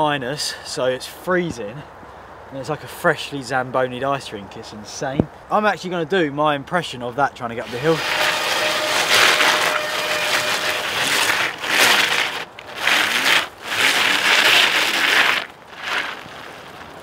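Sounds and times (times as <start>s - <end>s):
studded bike tyres grinding over ice: 7.6s - 17.0s.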